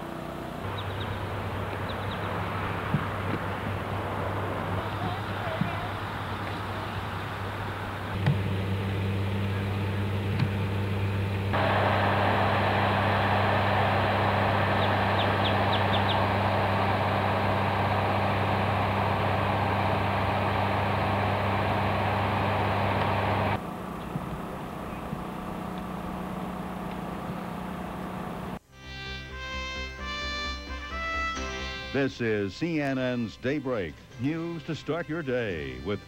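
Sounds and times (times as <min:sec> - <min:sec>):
low motor hum: 0:00.0 - 0:28.7
outdoor background hiss: 0:00.0 - 0:36.0.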